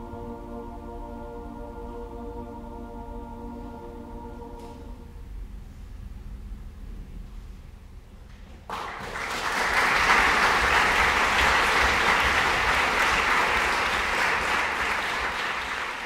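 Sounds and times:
audience applauding: 0:08.7 - 0:16.0.

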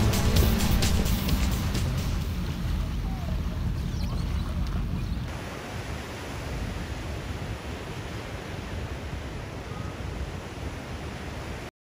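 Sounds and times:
steady rushing noise: 0:00.0 - 0:03.9
low rumble: 0:00.0 - 0:05.3.

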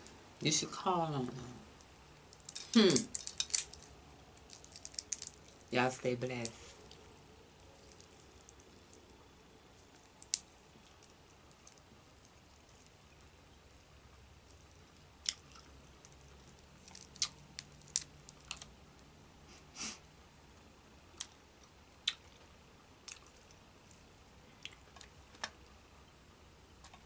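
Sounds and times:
crawfish shells cracking: 0:01.8 - 0:13.4, 0:14.4 - 0:19.1.

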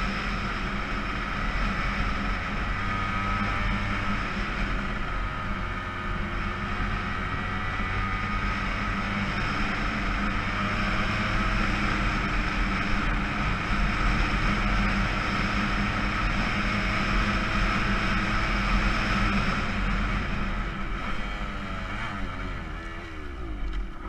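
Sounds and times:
motorcycle engine running: 0:00.0 - 0:24.0
wind and road noise: 0:00.0 - 0:24.0.

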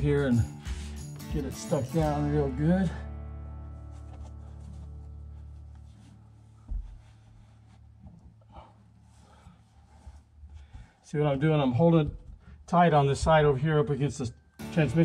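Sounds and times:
sustained music chord: 0:00.0 - 0:06.2, 0:14.6 - 0:15.0
faint rustles of carpet pressed: 0:03.6 - 0:13.4.

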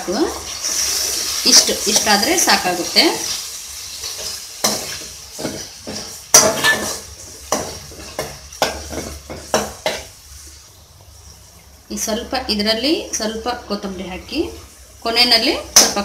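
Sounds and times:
masala sizzling in a pan: 0:00.0 - 0:16.0
metal spoon scraping a pan: 0:03.2 - 0:10.5.

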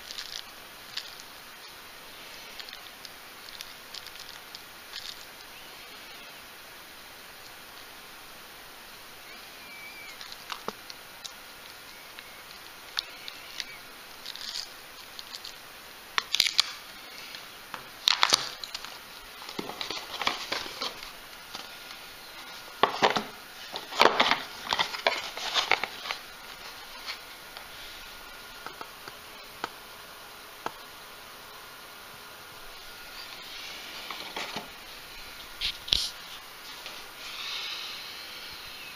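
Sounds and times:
plastic packaging crinkling: 0:00.0 - 0:05.6, 0:09.8 - 0:29.7, 0:32.6 - 0:37.1.

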